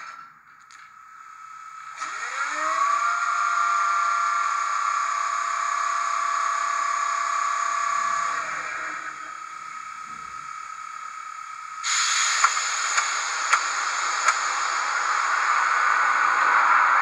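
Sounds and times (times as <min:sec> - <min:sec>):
model locomotive machinery hum: 0:00.0 - 0:17.0
hiss over hum: 0:06.3 - 0:17.0.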